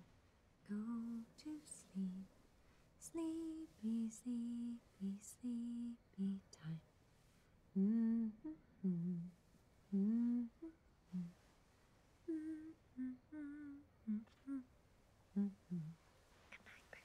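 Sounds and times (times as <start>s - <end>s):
woman humming a lullaby: 7.8s - 11.4s, 12.3s - 14.7s, 15.4s - 16.0s.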